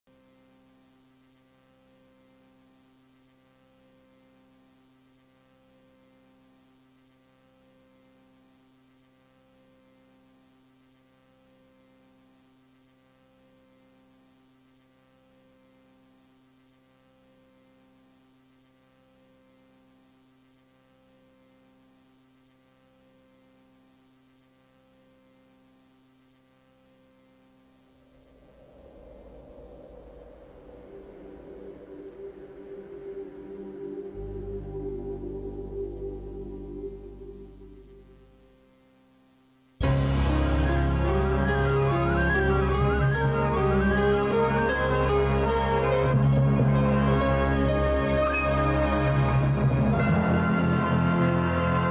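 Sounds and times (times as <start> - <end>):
electrical hum: 26.0 - 51.9
pulsing electrical tones: 27.7 - 38.7.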